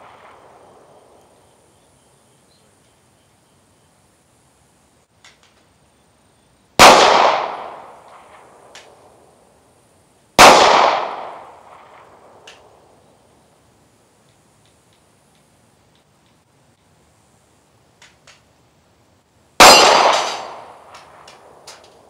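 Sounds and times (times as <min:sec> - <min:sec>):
pistol shots echoing: 0:06.8 - 0:08.9, 0:10.4 - 0:12.7, 0:19.6 - 0:21.8.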